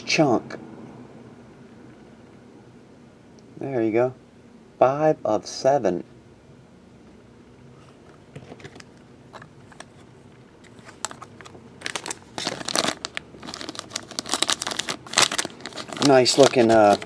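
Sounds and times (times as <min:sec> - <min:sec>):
plastic shrink wrap crinkling: 0:10.6 - 0:17.0.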